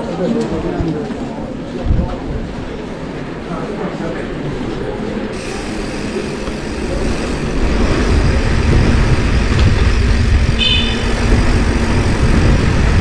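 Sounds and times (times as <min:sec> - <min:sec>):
wind buffeting microphone: 0:01.7 - 0:03.4, 0:05.4 - 0:13.0.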